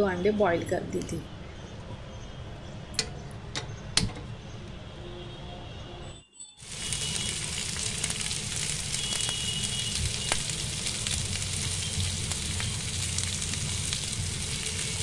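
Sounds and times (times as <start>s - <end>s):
water boiling in a pot: 6.6s - 15.0s.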